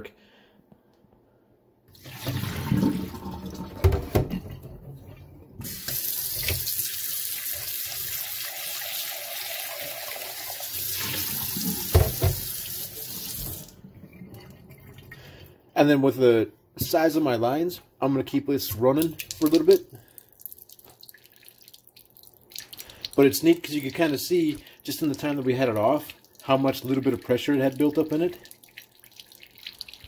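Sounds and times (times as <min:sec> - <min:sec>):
faucet running into a cup: 0:01.9 - 0:04.2, 0:05.6 - 0:15.1
water sloshing into a metal sink: 0:01.9 - 0:06.8, 0:18.7 - 0:30.0.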